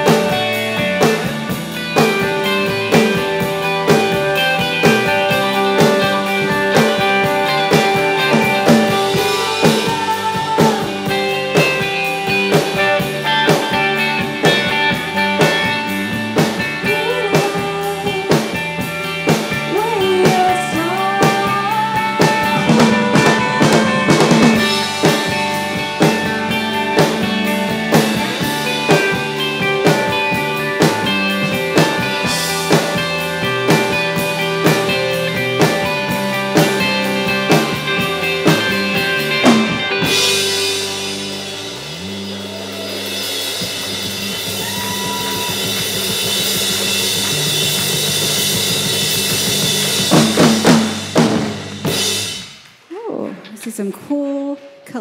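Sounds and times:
fast steady drumming: 0.0s - 54.2s
indie rock band playing: 0.0s - 55.0s
woman singing: 8.8s - 11.8s, 16.8s - 18.7s, 19.6s - 24.8s.

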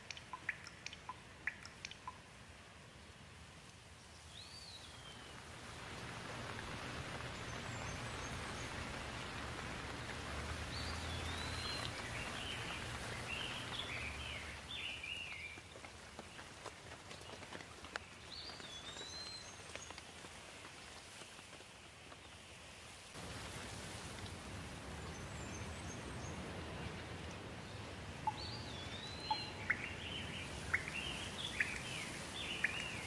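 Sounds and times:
bird chirping: 0.0s - 2.2s, 10.6s - 15.6s, 28.2s - 33.0s
sharp ticks of raindrops: 0.0s - 33.0s
steady rain falling: 0.0s - 33.0s.

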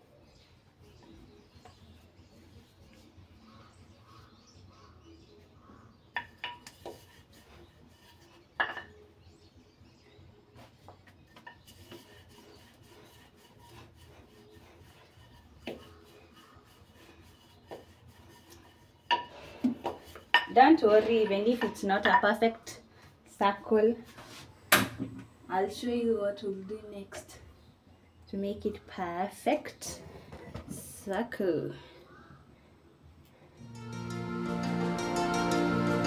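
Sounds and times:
rolling pin rubbing on dough: 6.6s - 8.6s, 10.6s - 21.3s.

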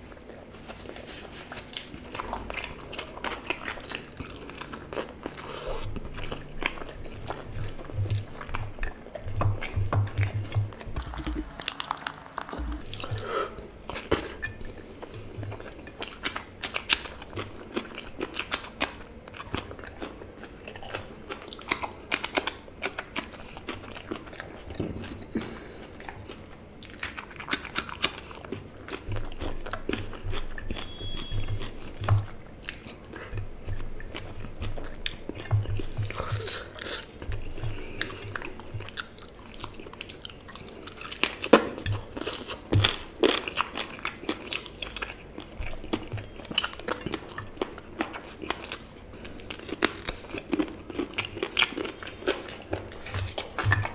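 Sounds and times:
wet chewing and biting: 0.0s - 53.9s
mouth clicks and smacks: 6.9s - 13.4s.

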